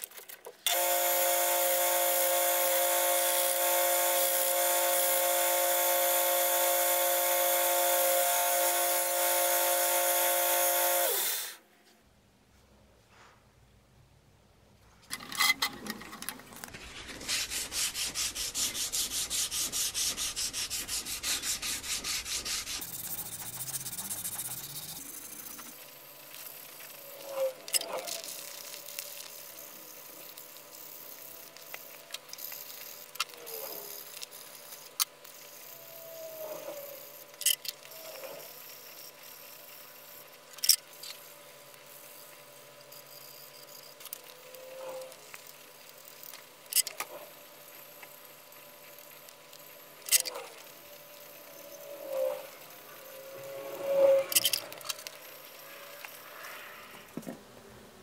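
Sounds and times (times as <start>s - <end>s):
sandpaper rubbing on handle: 16.7s - 25.7s.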